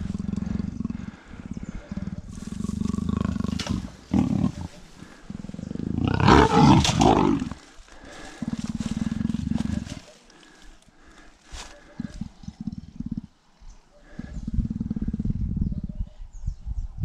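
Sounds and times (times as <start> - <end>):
leopard snarl: 0.0 - 16.1
leopard growling: 0.0 - 16.2.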